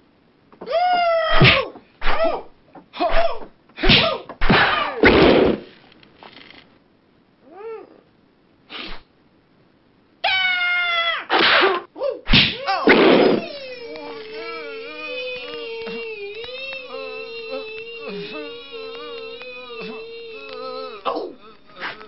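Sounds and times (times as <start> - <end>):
rough shouts or blows: 0.6 - 5.7, 10.2 - 22.0
martial arts battle cries: 12.4 - 22.0.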